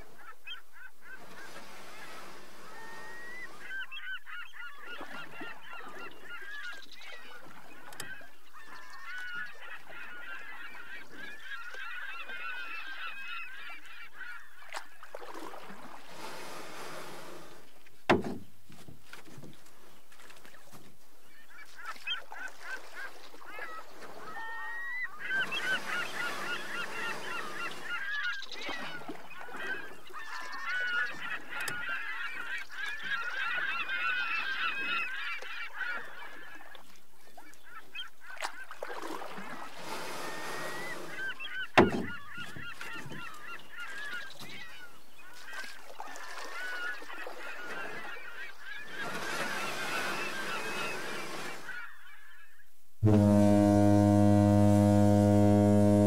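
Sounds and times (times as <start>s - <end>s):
flock of birds calling: 0.1s - 14.8s, 21.2s - 36.7s, 40.1s - 52.6s.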